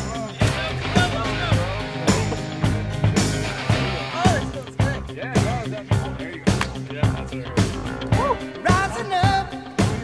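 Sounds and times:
rock music with electric guitar: 0.0s - 10.0s
steady drum beat: 0.0s - 10.0s.

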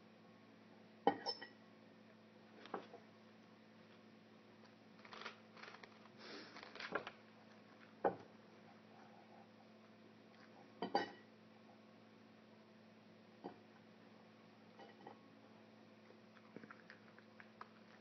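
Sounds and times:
steady low hum: 0.0s - 18.0s
dishes and cutlery clinking: 10.8s - 11.3s.

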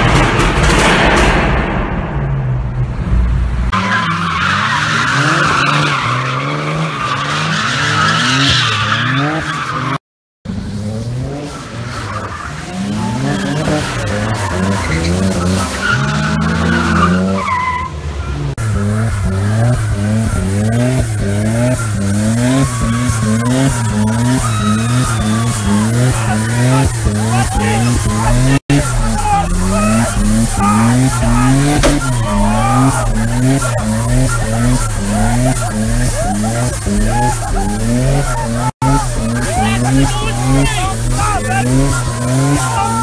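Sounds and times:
car engine revving: 2.5s - 43.0s
tyres screeching: 11.9s - 43.0s.

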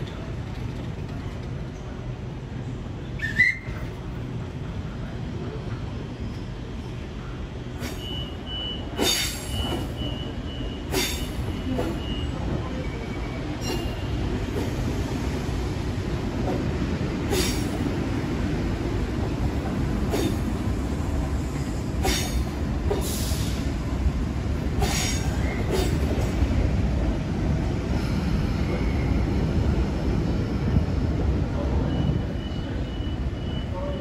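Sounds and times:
wheels clacking over track joints: 0.0s - 1.8s
train rumbling past: 0.0s - 34.0s.

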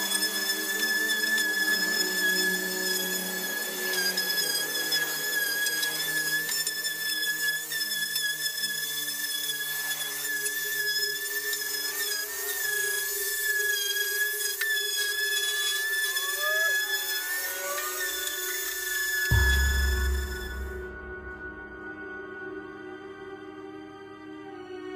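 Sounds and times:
electric sander whining: 9.6s - 21.6s.

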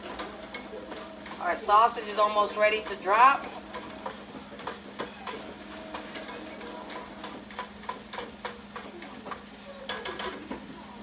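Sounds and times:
faint sizzling: 0.0s - 11.0s
meat chopper scraping skillet: 0.0s - 11.0s.

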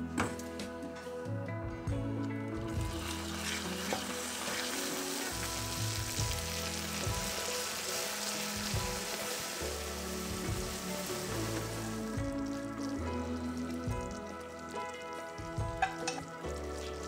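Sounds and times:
caramel sizzling and bubbling: 2.5s - 17.0s
spatula stirring in saucepan: 2.8s - 13.2s.

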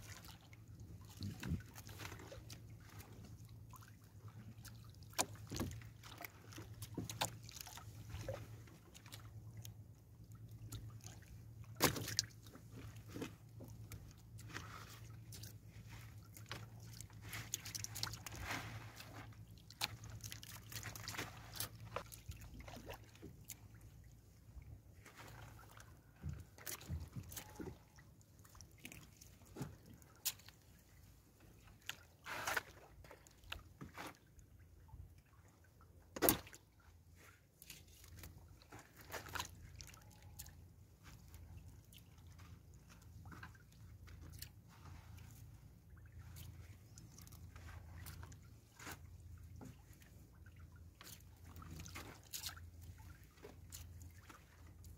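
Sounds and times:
water dripping and splashing: 0.0s - 9.8s, 16.2s - 23.8s, 26.5s - 27.8s, 49.6s - 54.9s.

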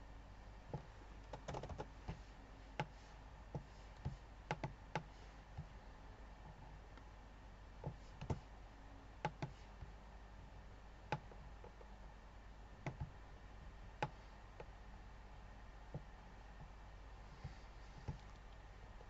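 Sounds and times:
faint steady hum: 0.0s - 19.0s
computer mouse clicking: 0.7s - 2.2s, 2.8s - 5.7s, 7.8s - 8.5s, 9.2s - 9.7s, 11.1s - 11.9s, 12.8s - 13.1s.

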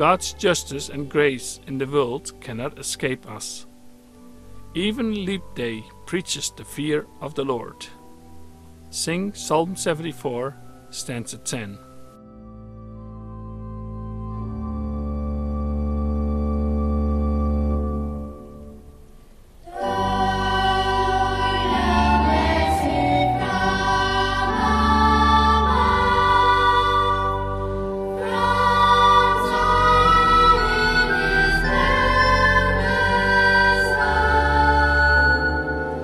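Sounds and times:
organ chords: 0.0s - 36.0s
choir singing: 19.7s - 36.0s.

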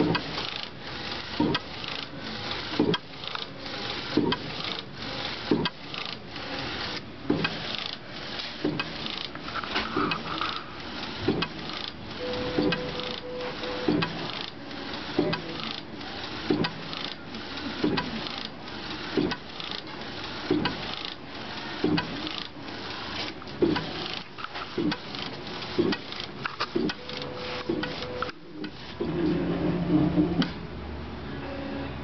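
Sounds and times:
printer carriage hissing: 0.0s - 30.6s
printer carriage knocking: 16.5s - 16.9s, 21.8s - 22.3s, 23.5s - 24.0s.

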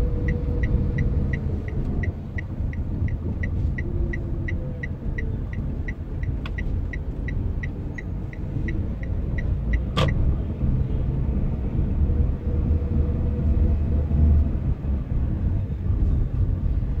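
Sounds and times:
car engine and road noise: 0.0s - 17.0s.

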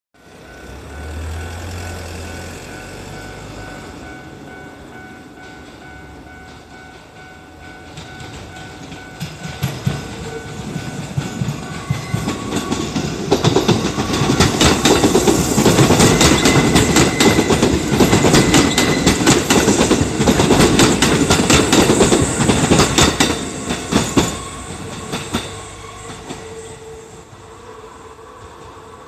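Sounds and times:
crossing warning bell ringing: 0.2s - 27.3s
electric train passing: 0.2s - 29.0s
wheels clacking over rail joints: 5.4s - 26.8s.

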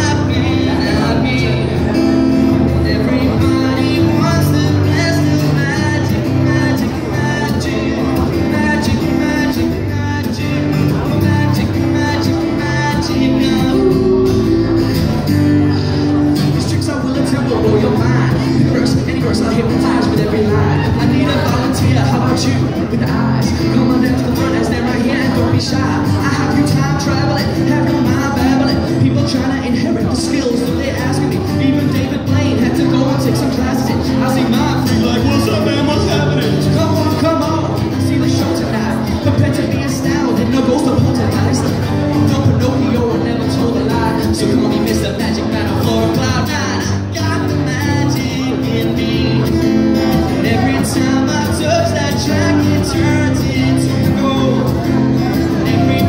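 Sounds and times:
acoustic guitar strumming chords: 0.0s - 56.0s
man singing into a microphone: 0.0s - 56.0s.

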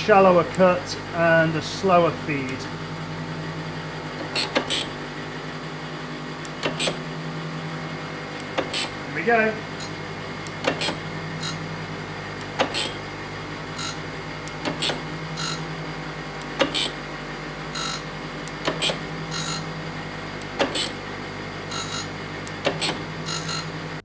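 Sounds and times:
grinder motor hum: 0.0s - 24.0s
grinding wheel hissing on steel: 10.7s - 15.8s.

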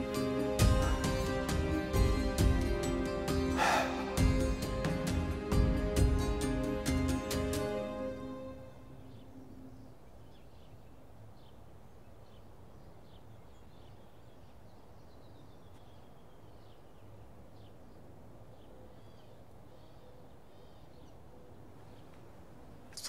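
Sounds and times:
falling bird call: 3.6s - 4.2s.

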